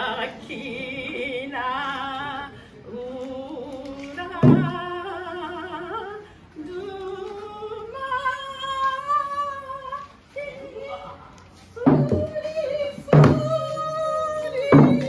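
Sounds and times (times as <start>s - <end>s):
women singing folk song: 0.0s - 15.0s
hand drum beat: 13.1s - 13.8s.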